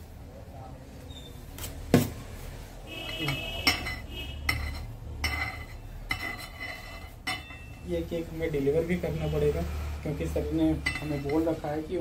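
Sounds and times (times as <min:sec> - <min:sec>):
metallic ringing: 0:03.0 - 0:08.3, 0:10.5 - 0:11.8
metal tools tapping on metal: 0:03.2 - 0:08.0, 0:10.6 - 0:11.8.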